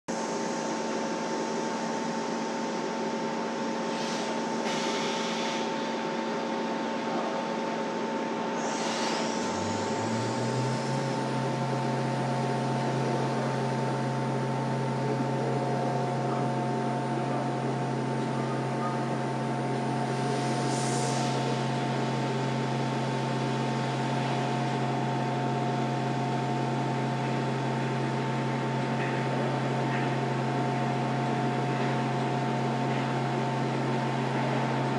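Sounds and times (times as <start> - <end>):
milling machine running: 8.0 - 34.9.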